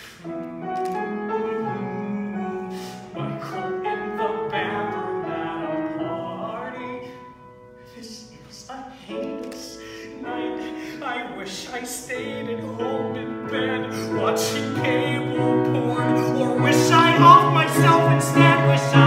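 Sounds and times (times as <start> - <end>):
piano accompaniment: 0.0 - 19.0
man singing long notes: 10.1 - 19.0.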